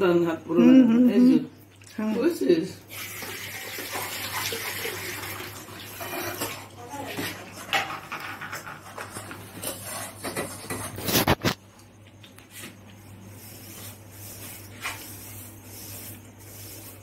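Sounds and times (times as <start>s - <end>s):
metal spatula scraping pan: 7.2s - 11.4s.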